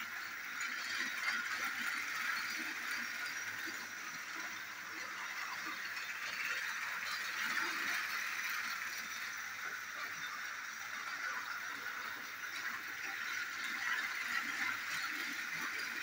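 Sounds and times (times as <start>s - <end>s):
toy train motor whirring: 0.0s - 16.0s
wheels rattling on plastic track: 0.0s - 16.0s.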